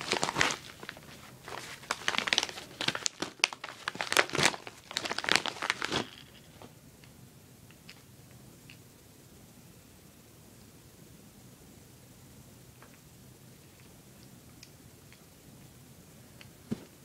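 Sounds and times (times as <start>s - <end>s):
packaging crinkling: 0.0s - 6.7s.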